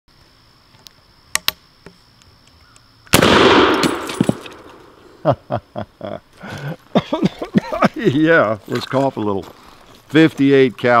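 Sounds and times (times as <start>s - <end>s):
rifle shot with echo: 3.1s - 5.0s.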